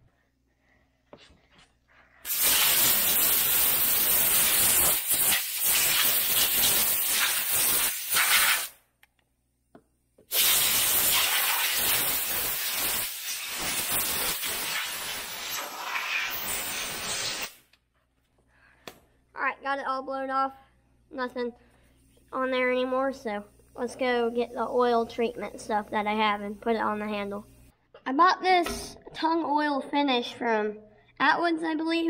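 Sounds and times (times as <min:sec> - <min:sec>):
air blow gun hissing: 0:02.2 - 0:08.7, 0:10.3 - 0:17.6.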